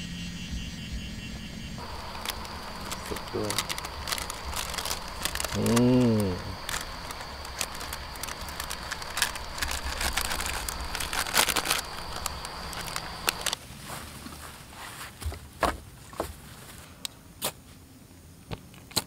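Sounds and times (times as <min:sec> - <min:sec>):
steady high tone: 0:00.0 - 0:13.4
plastic wrapping crinkling: 0:01.8 - 0:13.6.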